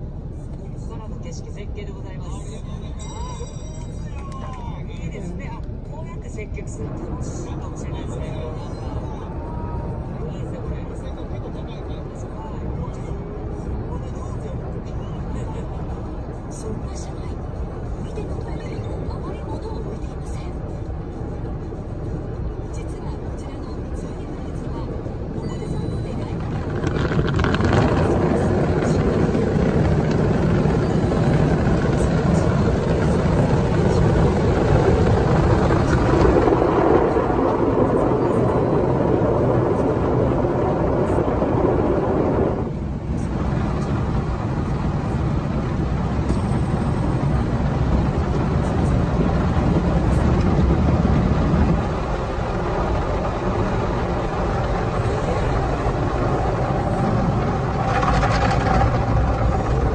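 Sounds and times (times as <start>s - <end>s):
car wash water spray: 26.2s - 59.9s.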